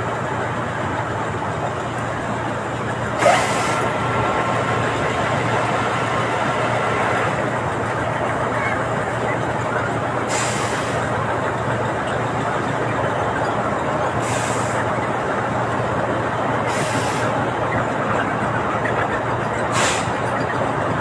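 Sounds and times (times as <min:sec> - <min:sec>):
conveyor machinery running: 0:00.0 - 0:21.0.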